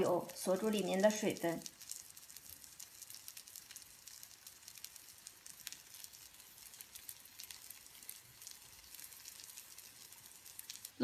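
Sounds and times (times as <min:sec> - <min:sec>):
oil sizzling in a pan: 0:00.0 - 0:11.0.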